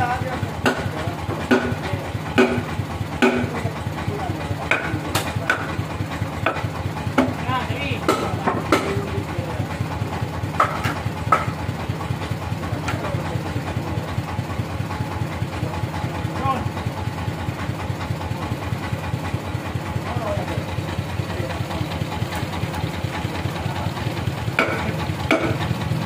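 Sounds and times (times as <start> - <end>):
engine idling: 0.0 - 26.0
metal clanks and knocks: 0.6 - 13.2, 21.5 - 25.8.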